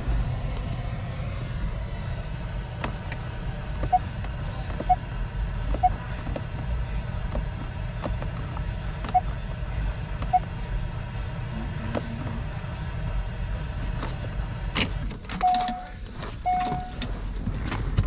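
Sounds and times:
car engine idling: 0.0 - 18.0
dashboard chime beeping: 16.5 - 17.0.

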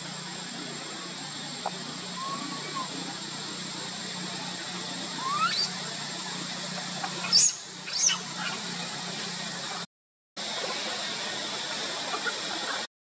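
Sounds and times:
steady hum and hiss: 0.0 - 12.9
young monkey squealing: 2.1 - 3.0, 5.2 - 5.8, 7.0 - 8.8.

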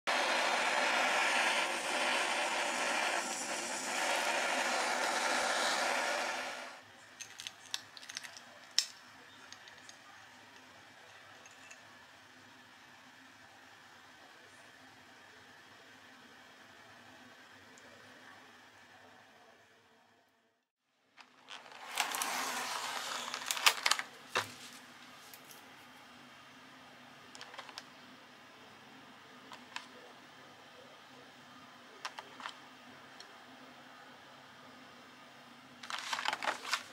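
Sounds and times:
blowtorch hissing: 0.1 - 6.8
plastic crinkling: 21.3 - 24.5, 35.8 - 36.9.

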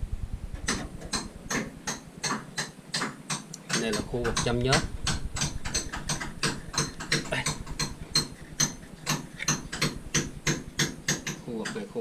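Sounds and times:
low rumble: 0.0 - 1.5, 4.0 - 10.8
rapid even clicking: 0.6 - 12.0.

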